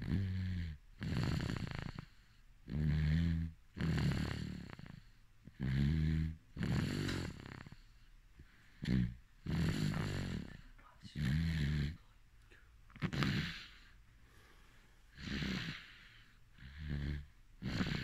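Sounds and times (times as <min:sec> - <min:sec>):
baby snoring: 0:00.0 - 0:08.0, 0:08.8 - 0:12.0, 0:13.0 - 0:14.0, 0:15.1 - 0:18.0.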